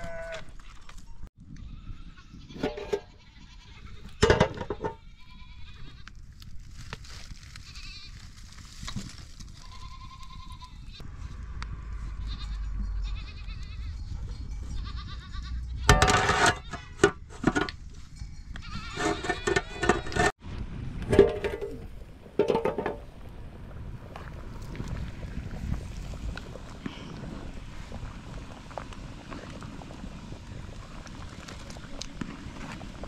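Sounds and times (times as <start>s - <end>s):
goats bleating: 0.0s - 0.5s, 14.8s - 17.0s.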